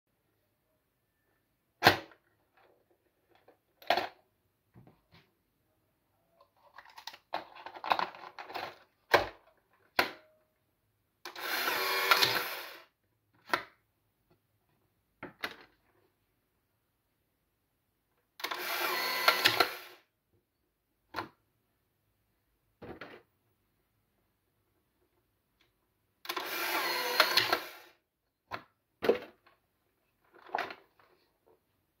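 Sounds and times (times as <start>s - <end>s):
plastic rattling and clicks: 6.4s - 10.3s
camera motor whirring: 11.4s - 12.8s, 18.5s - 20.0s, 26.3s - 27.9s.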